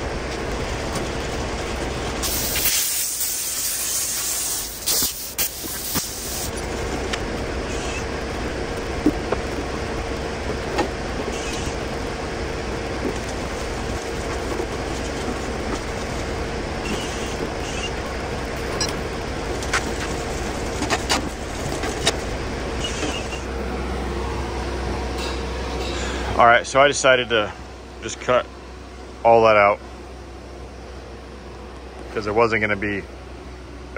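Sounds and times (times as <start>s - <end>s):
shop machinery drone: 0.0s - 33.9s
hiss: 2.2s - 6.6s.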